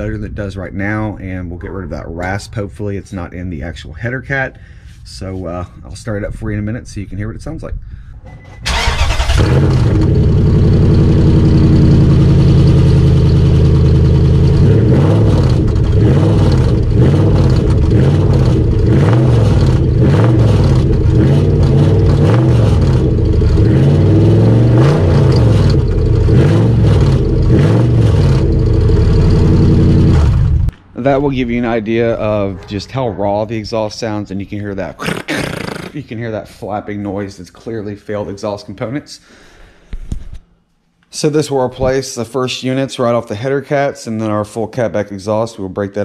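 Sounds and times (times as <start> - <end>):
truck engine revving raspy: 8.7 - 33.1
metal flapping inside exhaust: 11.4 - 30.7.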